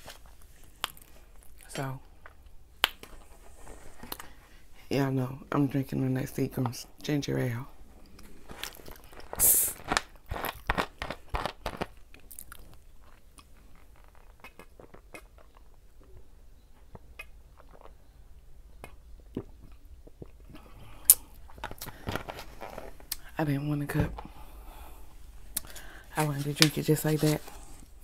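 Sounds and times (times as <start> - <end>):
plastic bottle cap crackling: 8.2 - 12.7.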